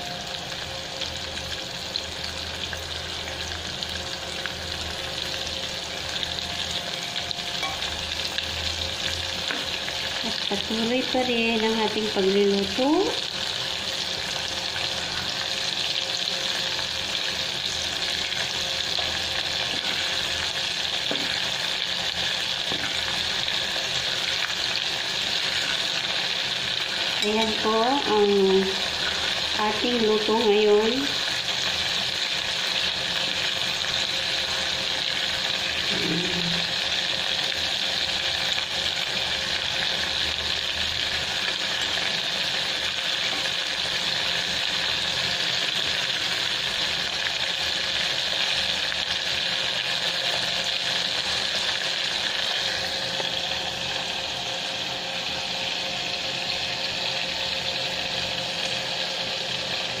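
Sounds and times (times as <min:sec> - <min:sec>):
deep-frying sizzle in oil: 0:00.0 - 1:00.0.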